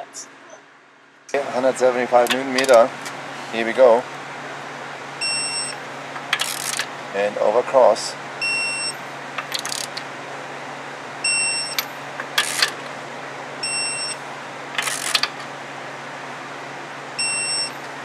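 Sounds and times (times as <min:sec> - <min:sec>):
torque wrench beeping: 0:05.2 - 0:06.9, 0:08.4 - 0:10.0, 0:11.2 - 0:12.7, 0:13.6 - 0:14.2, 0:14.8 - 0:15.3, 0:17.2 - 0:17.8
wrench ratcheting: 0:06.3 - 0:06.9, 0:09.4 - 0:10.0, 0:11.7 - 0:12.8, 0:14.8 - 0:15.4.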